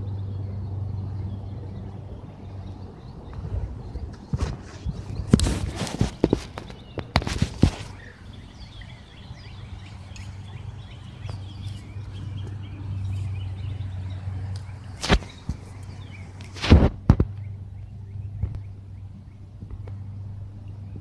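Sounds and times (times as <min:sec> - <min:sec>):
low hum: 0:00.0 - 0:21.0
small birds chirping: 0:00.0 - 0:21.0
footsteps crunching through dry grass: 0:04.1 - 0:17.0.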